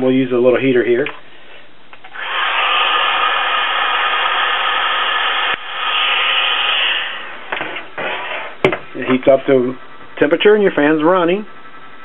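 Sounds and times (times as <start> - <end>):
heat gun blowing hiss: 2.0 - 8.6.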